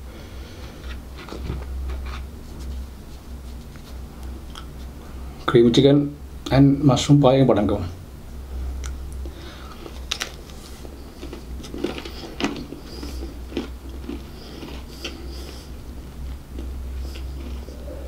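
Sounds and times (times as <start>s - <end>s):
low steady hum: 0.0s - 18.0s
biting crunchy pastry: 9.8s - 17.9s
chewing mouth sounds: 10.9s - 18.0s.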